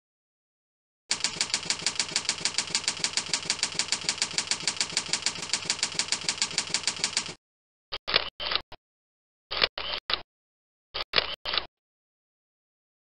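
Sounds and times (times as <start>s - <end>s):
rapid keystroke clicks: 1.1s - 7.4s.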